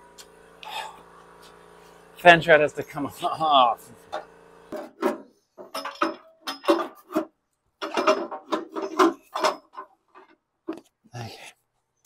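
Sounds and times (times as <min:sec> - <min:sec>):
tools and sheet metal clinking: 0:04.7 - 0:10.4.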